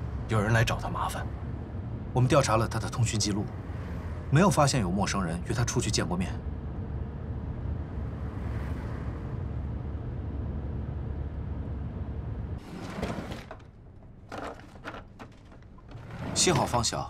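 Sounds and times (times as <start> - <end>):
drawer sliding open: 12.6 - 17.0
small items clicking and rattling: 12.8 - 16.9.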